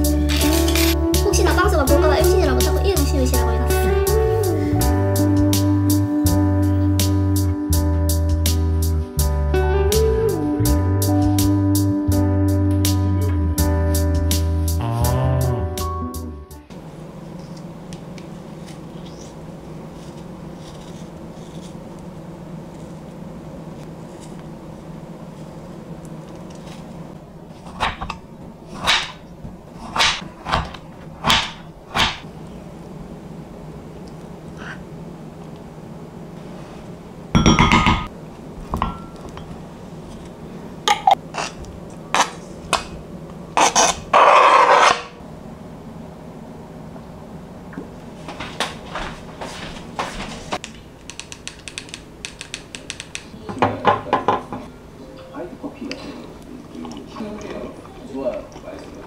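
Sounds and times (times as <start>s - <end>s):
steady low hum: 0.0s - 59.0s
knife scraping potato skin: 43.6s - 45.2s.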